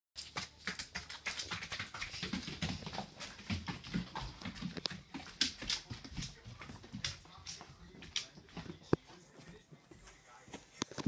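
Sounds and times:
dog claws clicking on floor: 0.2s - 9.0s.

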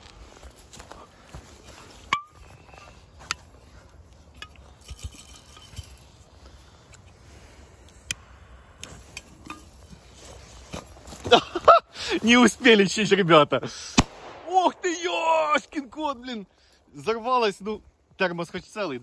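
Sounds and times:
light metallic clinks: 2.1s - 6.2s, 8.8s - 10.0s.

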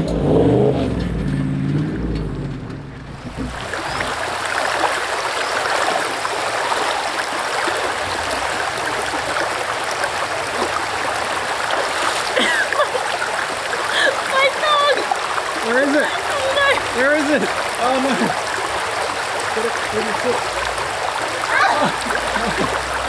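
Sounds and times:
river flowing over stones: 2.5s - 23.0s.

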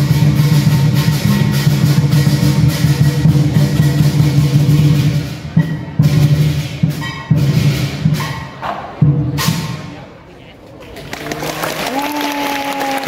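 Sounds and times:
lion dance drums and percussion: 0.0s - 10.2s.

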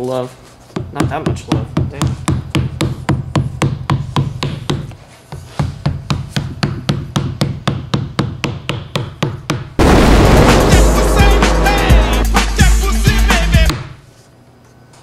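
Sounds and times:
rubber mallet tapping: 0.8s - 5.0s, 5.6s - 9.8s.

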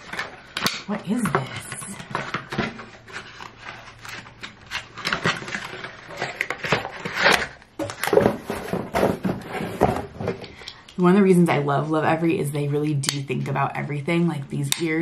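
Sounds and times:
cardboard rustling and scraping: 0.0s - 10.5s.

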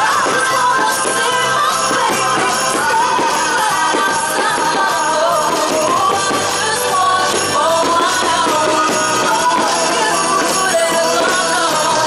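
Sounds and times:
music with singing voice: 0.0s - 12.0s.

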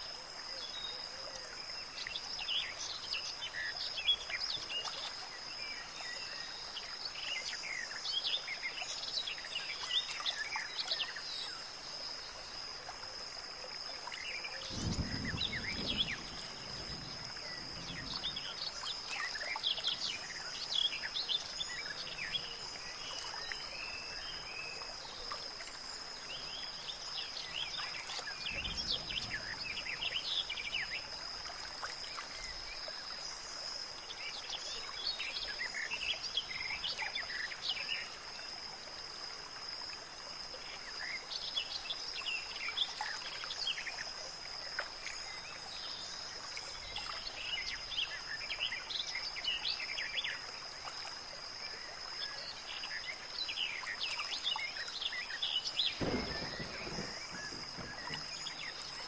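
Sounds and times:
soft background hiss: 0.0s - 59.0s
bird chirps: 53.1s - 59.0s.

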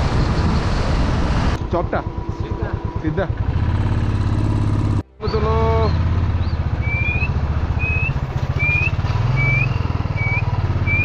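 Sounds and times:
motorcycle engine running: 1.6s - 11.0s
short rising whistles: 5.2s - 11.0s.

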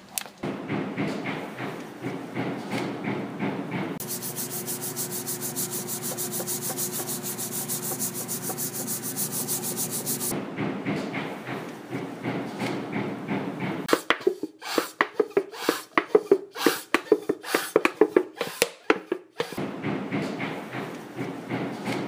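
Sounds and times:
rough rubbing noise: 4.0s - 10.3s.

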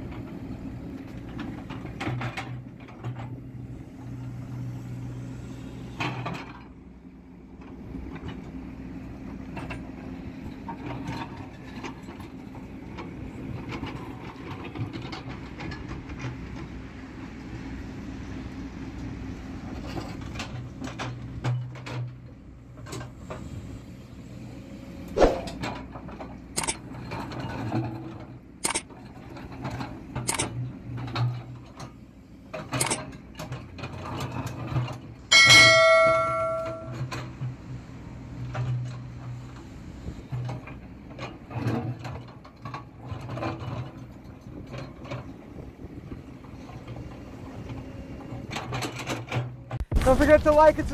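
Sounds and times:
excavator diesel engine running: 0.0s - 50.9s
loud metallic clang: 35.3s - 37.1s.

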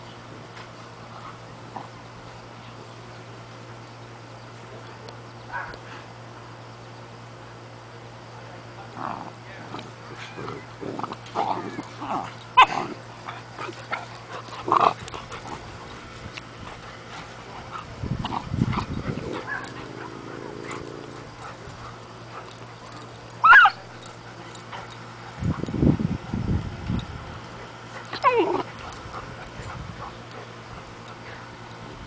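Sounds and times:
dog yelping sharply: 23.4s - 23.8s
dogs crying and whimpering: 23.4s - 23.9s, 28.1s - 28.9s.

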